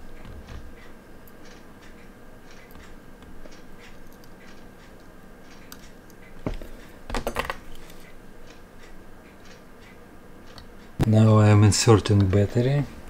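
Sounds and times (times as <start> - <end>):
faint regular ticking: 0.0 - 13.0.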